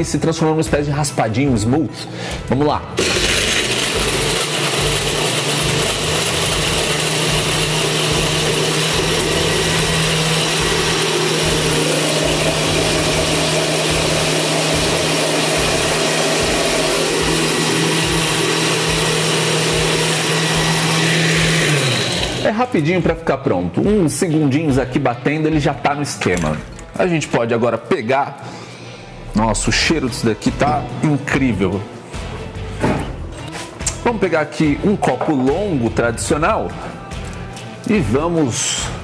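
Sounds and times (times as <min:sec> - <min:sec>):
blender crushing ice: 0:03.0 - 0:22.6.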